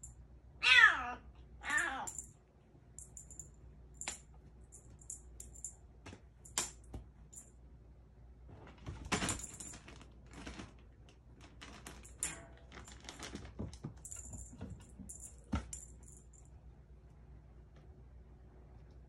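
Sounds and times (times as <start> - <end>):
toy jingling and rattling: 14.0 - 16.5.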